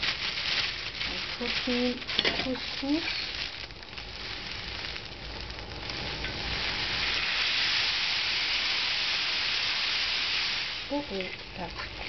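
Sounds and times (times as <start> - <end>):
grains poured into pot: 0.0 - 12.0
grains sizzling in oil: 0.0 - 12.0.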